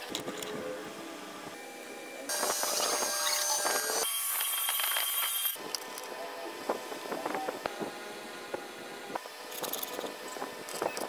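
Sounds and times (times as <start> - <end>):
power tool whining: 2.3 - 5.6.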